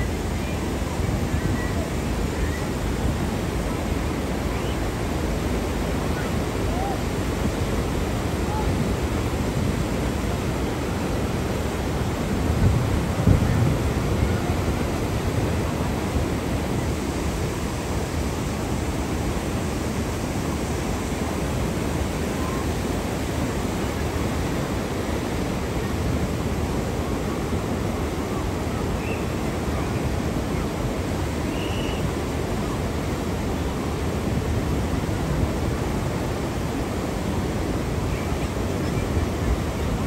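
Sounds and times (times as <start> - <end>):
turbulent water rushing: 0.0 - 40.0.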